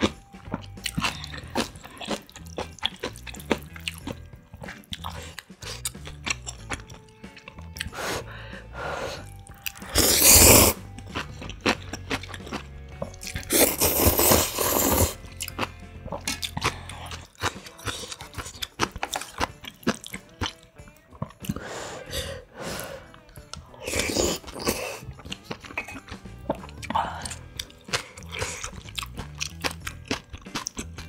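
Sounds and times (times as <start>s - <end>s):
wet chewing: 0.0s - 8.0s, 9.2s - 21.8s, 22.7s - 31.0s
slurping noodles: 9.1s - 10.9s, 13.2s - 15.3s, 23.8s - 26.2s.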